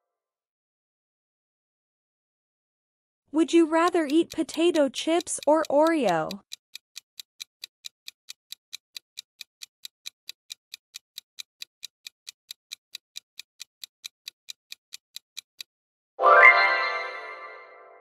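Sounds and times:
clock ticking: 3.4s - 15.7s
bright chime: 16.2s - 17.9s.

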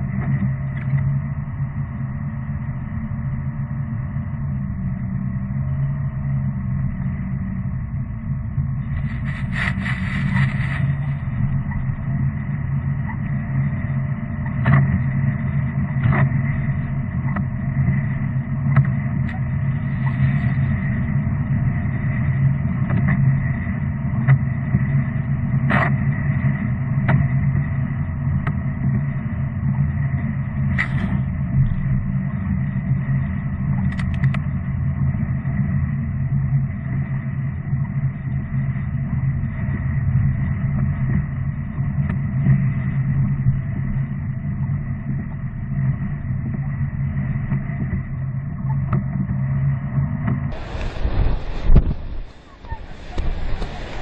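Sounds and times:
car driving on wet road: 8.9s - 11.3s, 50.5s - 54.0s
water spray hitting windscreen: 9.1s - 11.2s, 50.5s - 54.0s.

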